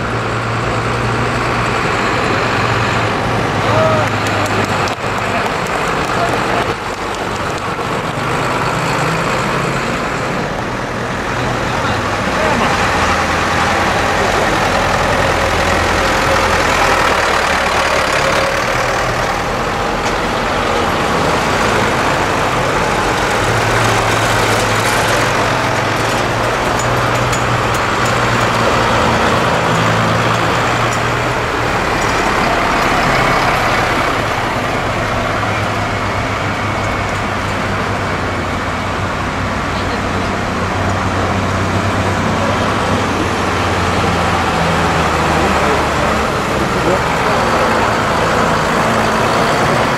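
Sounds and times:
tractor diesel engines passing: 0.0 - 49.9.

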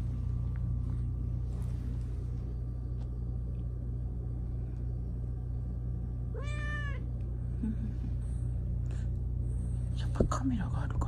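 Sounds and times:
steady low hum: 0.0 - 11.0
cat meowing: 6.3 - 7.1.

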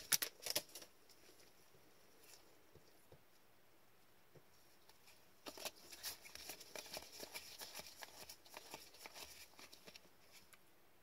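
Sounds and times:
trading cards flicked and rustling: 0.0 - 0.9.

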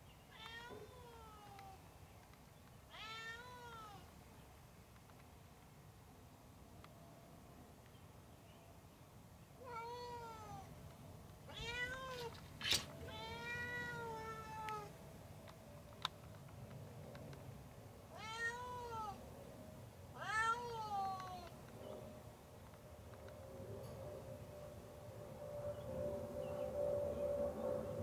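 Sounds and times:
cat meowing: 0.3 - 1.8, 2.9 - 4.1, 9.6 - 10.7, 11.5 - 14.9, 18.1 - 19.2, 20.2 - 21.5.

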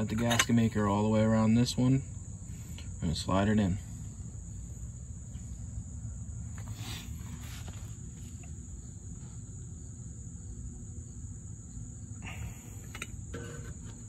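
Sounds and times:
crickets trilling: 0.0 - 14.0.

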